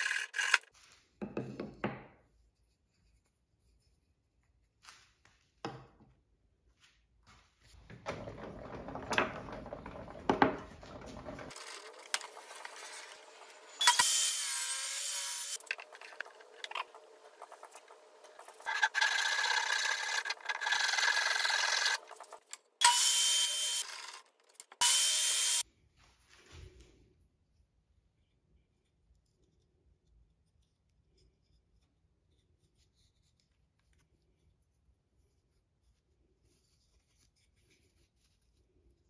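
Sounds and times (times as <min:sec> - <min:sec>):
power tool cutting wood: 0:11.5 - 0:25.6.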